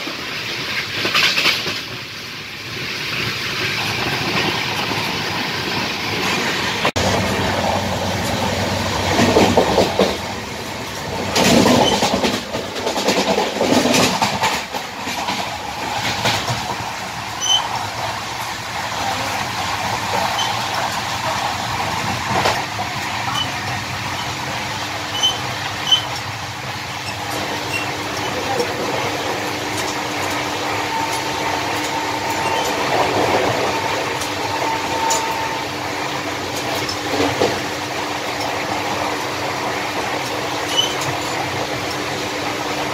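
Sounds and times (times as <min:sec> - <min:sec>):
train rumble: 0:00.0 - 0:42.9
gangway clattering and rattling: 0:03.8 - 0:19.0.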